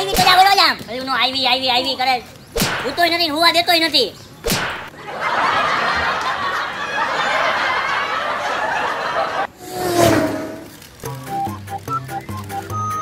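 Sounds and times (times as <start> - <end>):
sharp smack: 2.6 - 3.0, 4.4 - 4.9
canned crowd laughter: 5.0 - 9.6.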